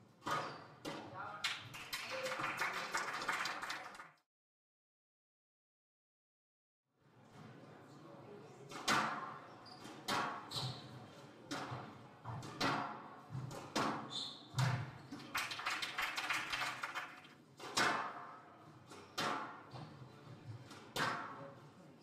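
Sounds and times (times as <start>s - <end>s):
squash ball impacts echoing: 19.1s - 19.9s.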